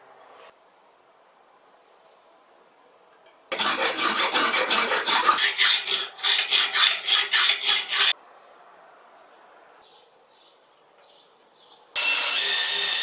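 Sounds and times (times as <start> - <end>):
hacksaw cutting metal rod: 3.5 - 8.1.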